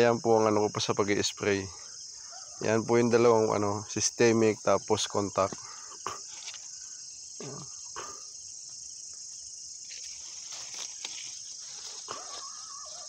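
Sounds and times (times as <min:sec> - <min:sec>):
night insects chorus: 0:00.0 - 0:13.0
faint rustles: 0:09.8 - 0:13.0.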